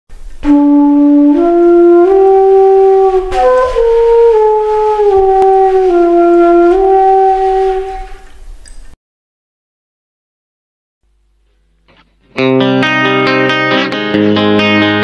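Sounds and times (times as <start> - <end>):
slow wind instrument melody: 0.4 - 8.5.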